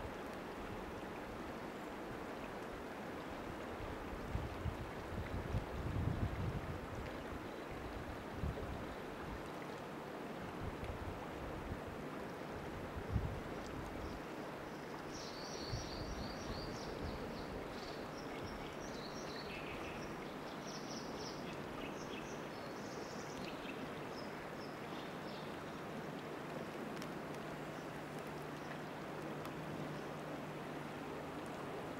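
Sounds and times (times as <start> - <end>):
river water rushing over gravel: 21.3 - 31.9.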